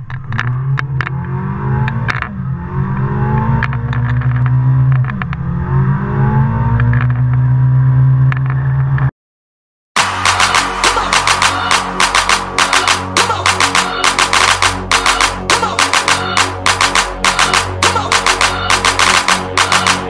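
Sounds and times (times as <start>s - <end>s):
car engine revving: 0.1s - 9.1s, 10.0s - 20.0s
sharp clicks: 10.0s - 20.0s.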